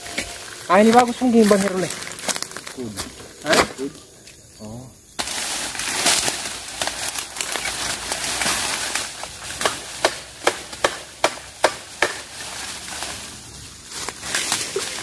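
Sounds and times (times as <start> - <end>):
bamboo rustling: 0.0 - 15.0
sharp strikes on bamboo: 8.3 - 12.4.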